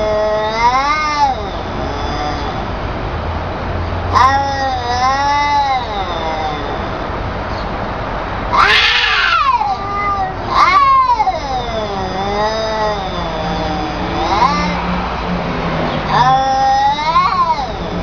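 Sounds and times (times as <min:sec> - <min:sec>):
cats yowling: 0:00.0 - 0:02.9, 0:04.1 - 0:07.4, 0:08.5 - 0:15.2, 0:15.9 - 0:18.0.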